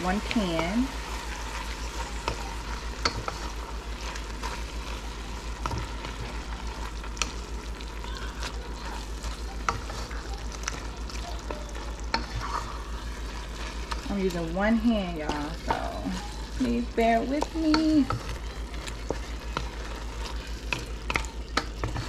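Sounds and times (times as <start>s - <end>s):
meat sauce sizzling in a pan: 0.0s - 22.0s
steady low hum: 0.0s - 22.0s
wooden spatula scraping a pan: 12.1s - 22.0s.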